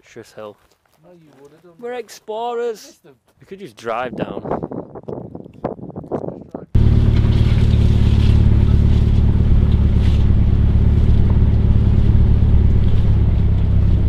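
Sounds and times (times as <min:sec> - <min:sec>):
vehicle rumbling over rough track: 0:06.8 - 0:14.0.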